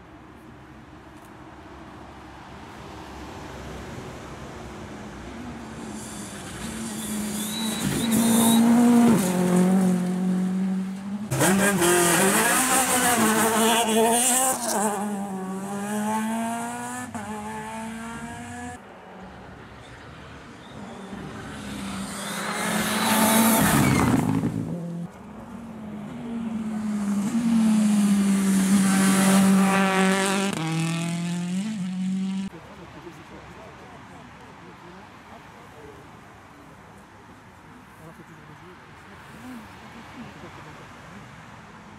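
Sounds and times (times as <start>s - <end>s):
rally car engines revving past: 5.0s - 19.2s, 20.5s - 25.1s, 25.7s - 32.6s.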